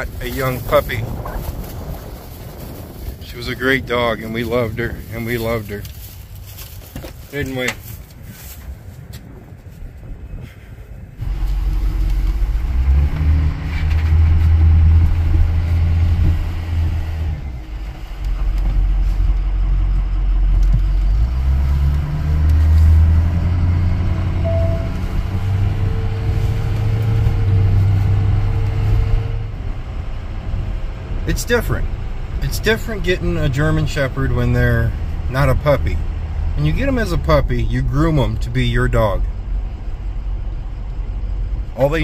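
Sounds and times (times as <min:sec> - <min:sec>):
road rumble: 0:00.0 - 0:42.0
diesel truck engine accelerating: 0:11.2 - 0:42.0.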